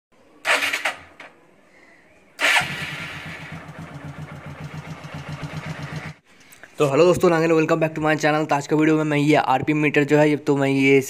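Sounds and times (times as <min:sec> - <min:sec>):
motorcycle engine starting and idling: 0:00.4 - 0:01.4, 0:02.4 - 0:06.2.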